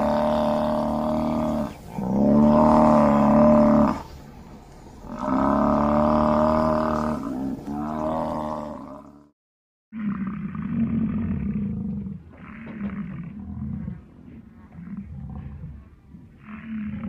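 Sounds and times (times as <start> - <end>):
buffalo growling: 0.0 - 4.2, 5.0 - 9.3, 10.0 - 17.0.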